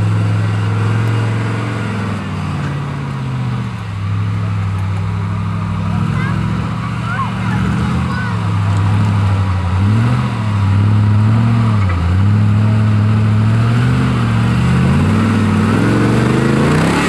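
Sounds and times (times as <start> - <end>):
off-road vehicle engine revving: 0.0 - 17.0.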